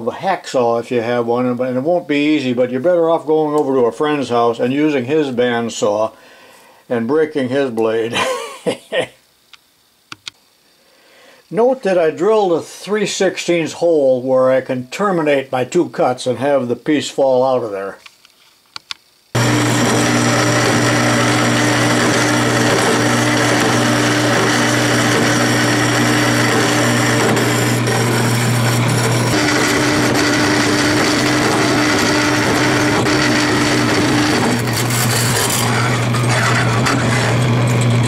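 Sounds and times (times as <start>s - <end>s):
band saw cutting steel: 19.4s - 38.0s.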